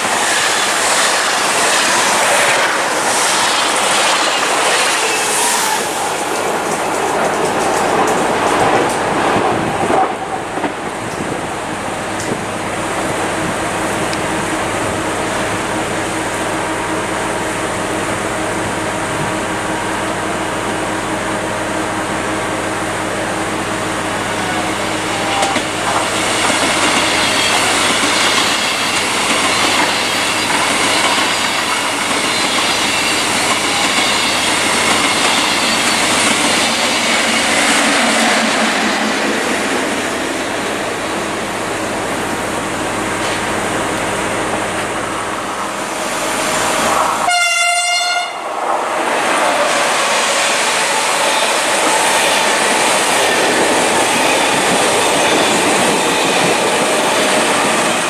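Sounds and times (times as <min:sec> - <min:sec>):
train running past: 0:00.0 - 0:58.0
train horn blast: 0:47.2 - 0:48.5.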